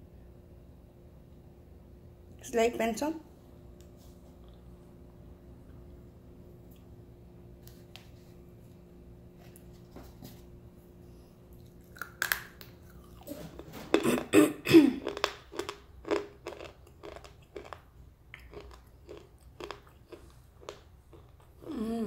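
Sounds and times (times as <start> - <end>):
dry crunchy chewing: 11.5 - 21.7
person biting with crisp snap: 11.8 - 13.2.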